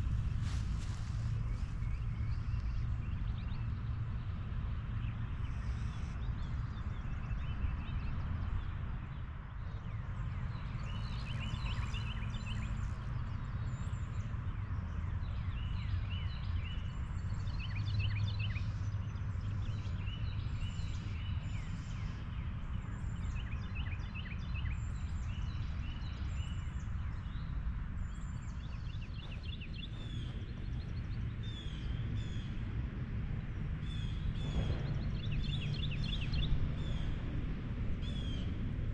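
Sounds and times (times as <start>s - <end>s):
steady low rumble: 0.0s - 17.5s, 26.9s - 38.9s
birds singing and chirping: 28.1s - 32.5s.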